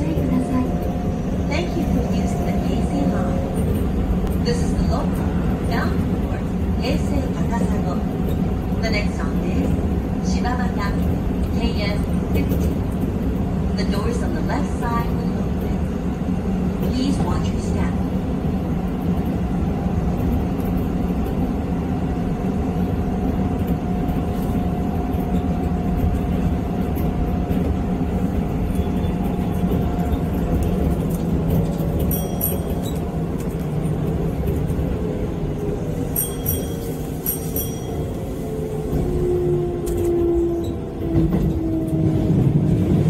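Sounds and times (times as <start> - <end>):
train rumbling on rails: 0.0 - 43.0
level-crossing warning bells: 31.6 - 34.0, 35.8 - 42.3.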